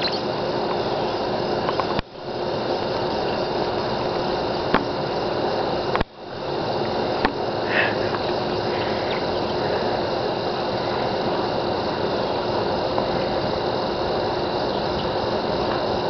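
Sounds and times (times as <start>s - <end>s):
outdoor hiss: 0.0s - 16.0s.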